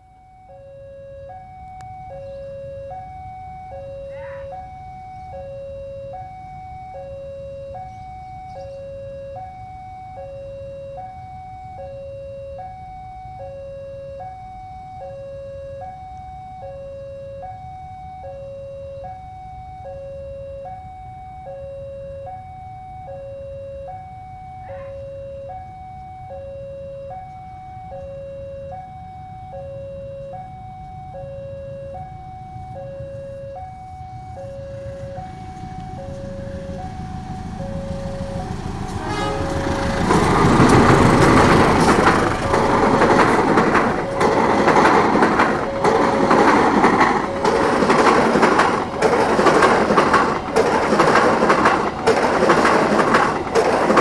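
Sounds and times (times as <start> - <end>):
two-tone crossing alarm: 0.0 - 54.0
trains rumbling past: 23.8 - 54.0.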